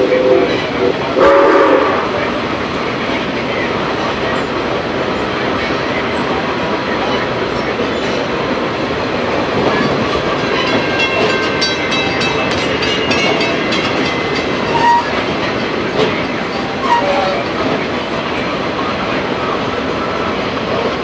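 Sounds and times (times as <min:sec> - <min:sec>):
train wheels rumbling on rails: 0:00.0 - 0:21.0
crossing warning bell dinging: 0:09.9 - 0:17.8.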